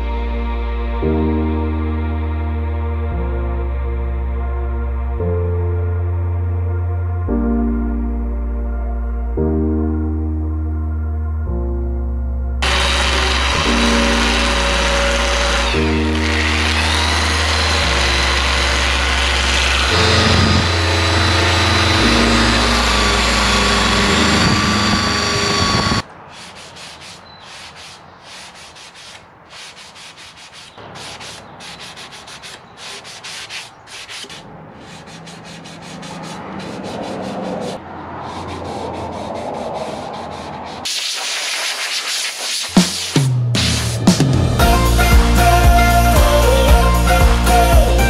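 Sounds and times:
angle grinder sanding wood: 0:12.6 - 0:43.2
sanding sponge rubbing wood: 0:12.6 - 0:43.8.

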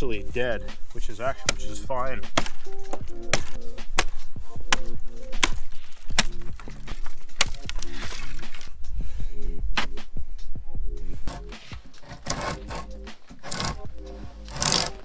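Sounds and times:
background music: 0:00.0 - 0:15.0
hatchet chopping wood: 0:01.4 - 0:08.7.

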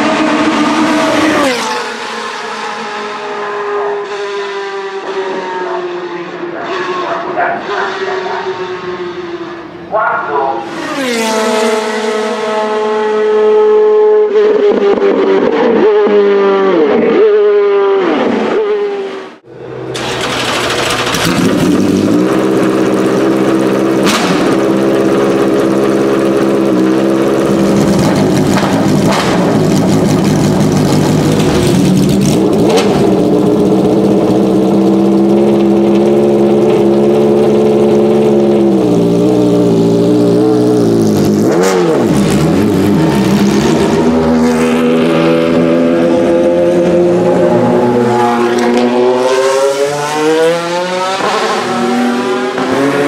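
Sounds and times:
racing car passing: 0:00.0 - 0:23.4, 0:39.8 - 0:53.0
car engine idling high: 0:19.5 - 0:41.5
exhaust pops: 0:23.9 - 0:24.9, 0:27.7 - 0:33.4.

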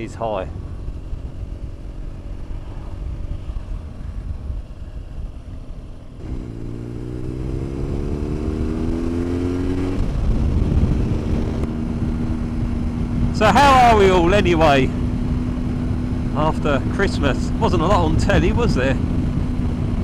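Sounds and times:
motorcycle engine accelerating: 0:00.0 - 0:20.0
road rumble: 0:00.0 - 0:20.0
wind: 0:00.0 - 0:20.0.

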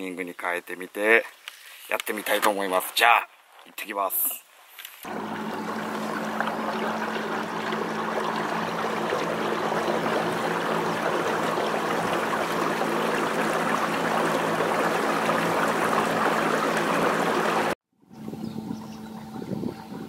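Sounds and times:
water rushing along boat hull: 0:05.0 - 0:17.8
low motor hum: 0:05.1 - 0:20.0.

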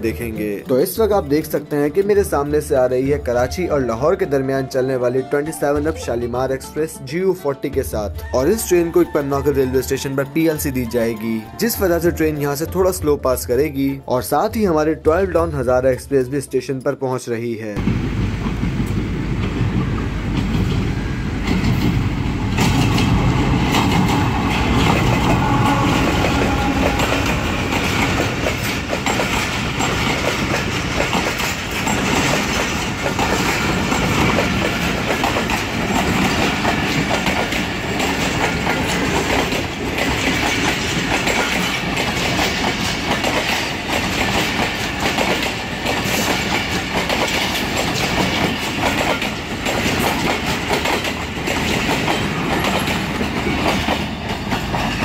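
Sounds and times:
train wheels clattering over rails: 0:17.8 - 0:55.0.

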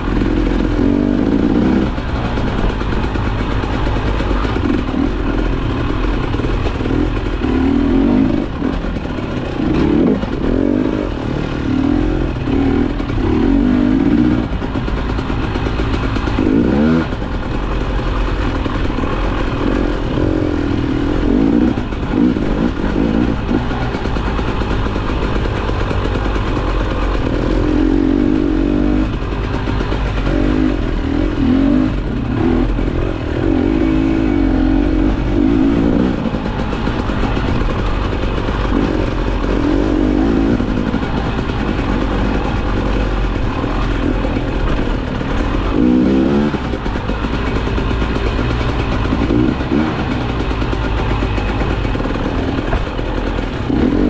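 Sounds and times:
motorcycle clattering over rough ground: 0:00.0 - 0:54.0
motorcycle engine revving: 0:00.0 - 0:54.0.

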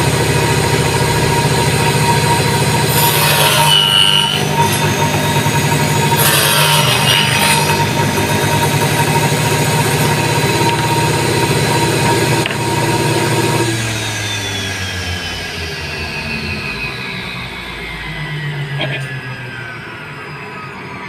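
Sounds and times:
saw blade cutting wood: 0:00.0 - 0:14.4
saw winding down: 0:00.0 - 0:21.0
table saw running: 0:00.0 - 0:21.0.

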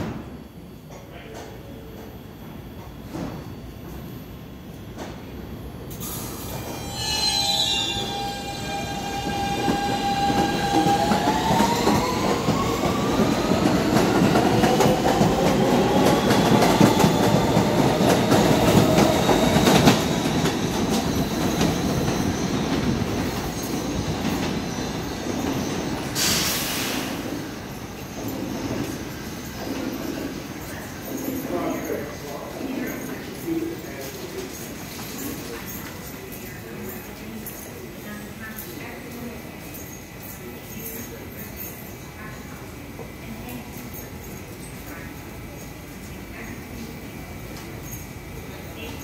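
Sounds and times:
subway train motors whining: 0:00.0 - 0:49.0
train wheels clattering on rails: 0:09.2 - 0:27.2.

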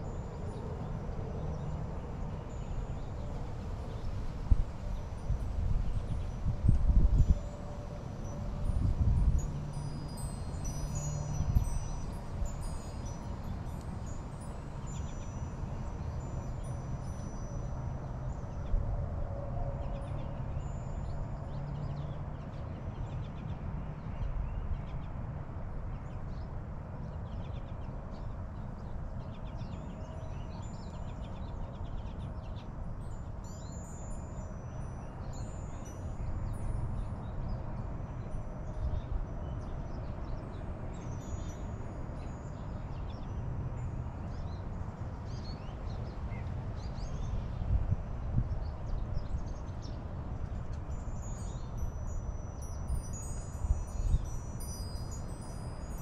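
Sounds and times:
wind-like noise: 0:00.0 - 0:22.7.

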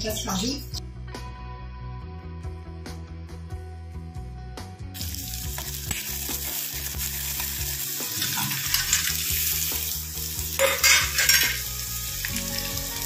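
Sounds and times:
nuts sizzling in hot ghee: 0:05.0 - 0:13.0.

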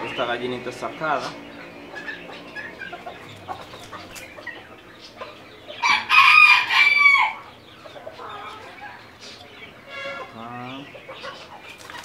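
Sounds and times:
rooster crowing: 0:05.8 - 0:07.5.

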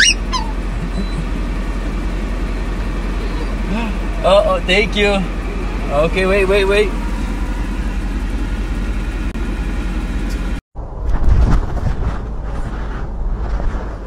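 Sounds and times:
car interior engine hum: 0:00.0 - 0:10.6
wind on microphone: 0:10.9 - 0:14.0
rustling and scrapes on tree: 0:11.1 - 0:14.0.

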